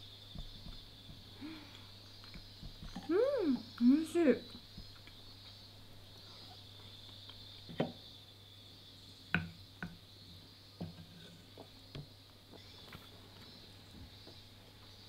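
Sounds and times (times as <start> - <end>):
steady high-pitched hum: 0.0 - 15.0.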